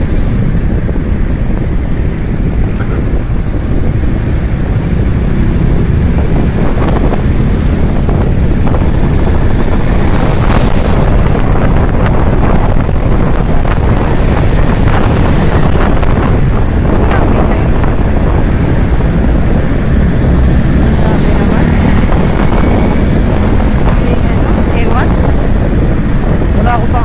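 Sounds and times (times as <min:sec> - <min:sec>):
wind rushing over microphone: 0:00.0 - 0:27.0.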